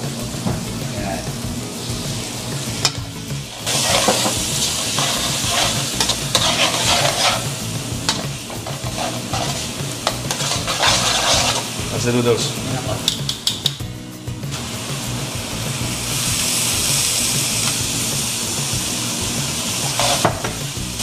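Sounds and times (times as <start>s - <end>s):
food sizzling in a wok: 0.0s - 21.0s
metal tongs scraping a pan: 2.8s - 11.8s, 19.8s - 20.6s.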